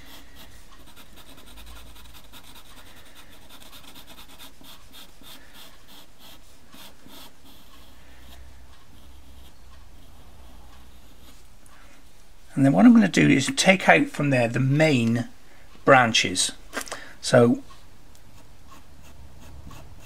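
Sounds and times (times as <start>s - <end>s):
pastel pencil scratching on paper: 0.0s - 11.5s, 18.3s - 20.0s.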